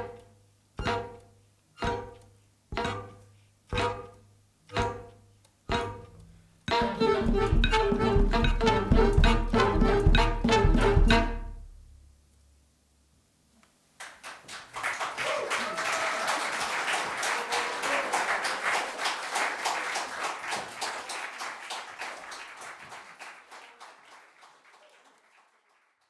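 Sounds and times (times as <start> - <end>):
audience applause: 14.0 - 26.0.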